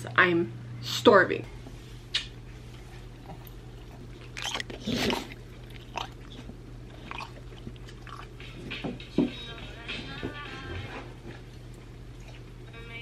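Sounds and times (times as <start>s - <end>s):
dog chewing and snuffling: 2.5s - 12.8s.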